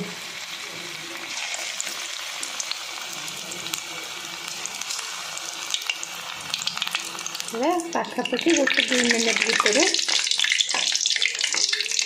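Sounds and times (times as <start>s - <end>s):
food deep-frying in hot oil: 0.0s - 12.0s.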